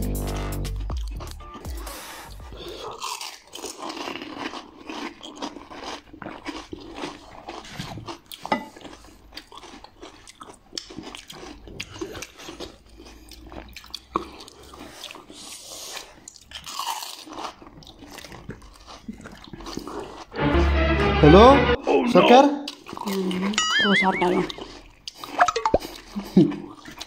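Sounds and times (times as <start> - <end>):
crisp shells crunched and chewed: 2.8 - 20.3.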